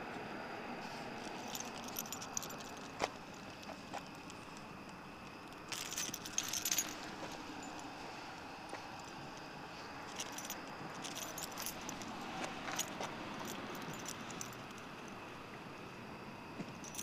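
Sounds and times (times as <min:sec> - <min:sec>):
small metal pieces jingling: 0:01.4 - 0:03.0, 0:05.5 - 0:07.9, 0:10.1 - 0:14.8.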